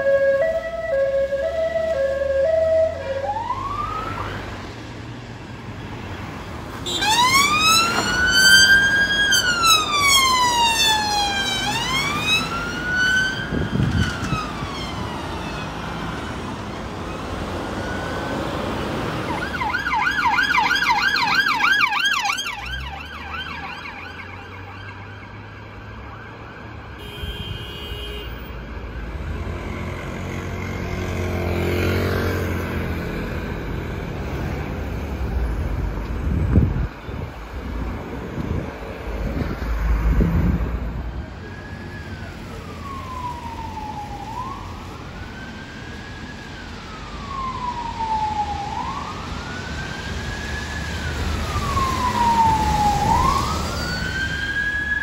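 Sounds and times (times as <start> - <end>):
two-tone police siren: 0.0 - 4.7, 6.8 - 34.0, 41.0 - 55.0
wailing police siren: 0.0 - 4.8, 6.8 - 27.2, 28.4 - 36.7, 38.6 - 55.0
road traffic noise: 0.0 - 55.0
fast yelping siren: 19.3 - 25.4, 45.5 - 55.0.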